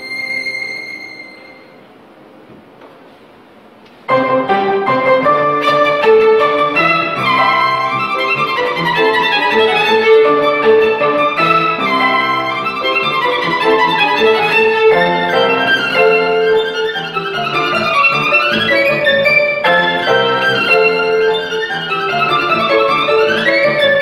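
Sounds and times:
violin slow melody: 0.0s - 1.9s, 4.2s - 24.0s
low accompaniment: 0.0s - 24.0s.

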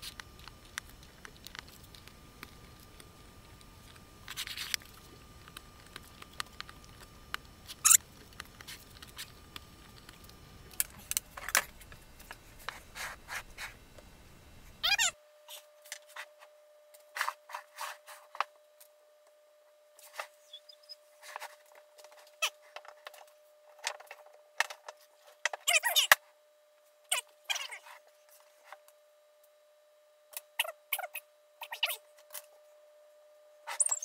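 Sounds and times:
faint steady tone: 28.0s - 34.0s.

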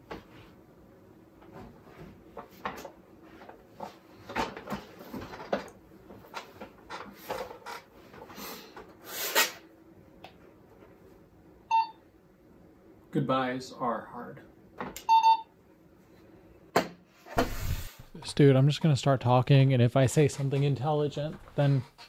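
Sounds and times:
office chair creaking: 2.5s - 8.4s, 17.3s - 18.2s.

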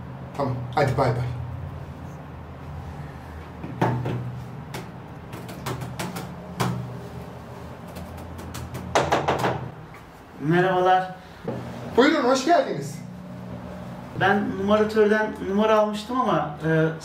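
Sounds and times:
steady low hum: 0.0s - 17.0s
knocks on wooden door: 8.8s - 9.7s.

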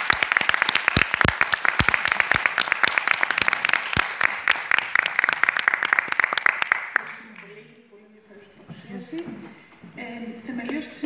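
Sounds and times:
loud close claps: 0.0s - 7.5s
audience applauding: 0.0s - 7.6s.

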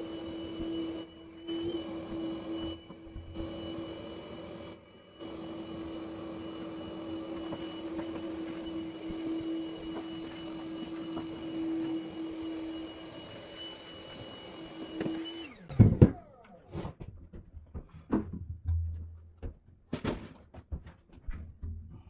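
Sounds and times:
power tool motor winding down: 0.0s - 16.6s
handling knocks and clatter: 15.7s - 22.0s.

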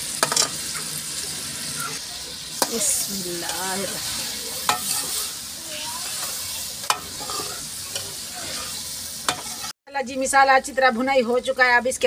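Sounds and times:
food sizzling in a pan: 0.0s - 11.9s
metal ladle scraping pan: 1.6s - 9.8s.

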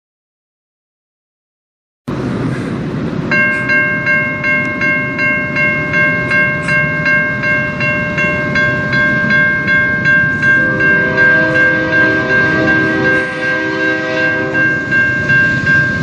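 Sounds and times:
railroad crossing bell ringing: 3.1s - 16.0s.

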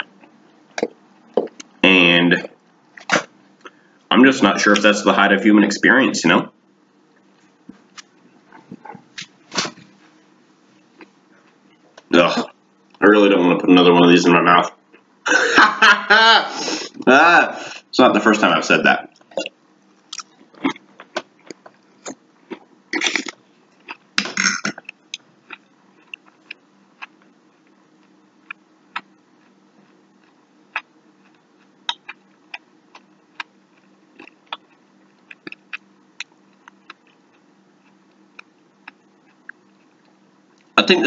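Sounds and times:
faint steady hum: 0.0s - 41.0s
person chewing: 19.2s - 40.8s.

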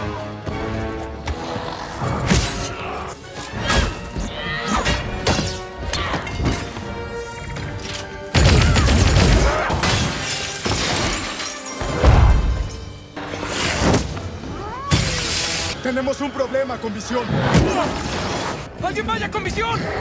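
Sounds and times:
dramatic film music: 0.0s - 20.0s
glass shattering: 9.2s - 13.0s.

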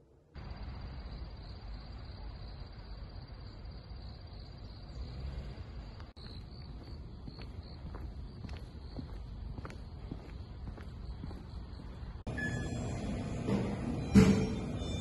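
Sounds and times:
crickets trilling: 0.4s - 12.4s
faint footsteps: 6.0s - 12.3s.

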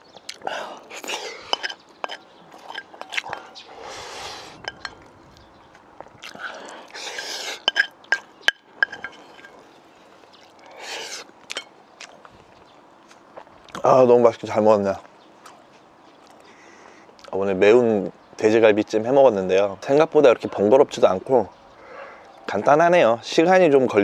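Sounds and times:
wet chewing: 0.0s - 13.9s, 15.0s - 17.4s
lip smacks: 0.1s - 1.6s, 2.5s - 8.3s, 15.4s - 17.4s
man slurping: 0.3s - 1.8s, 2.6s - 4.7s, 6.2s - 7.9s, 10.5s - 11.6s
metal spoon clinking on bowl: 1.4s - 3.2s, 7.6s - 9.6s.

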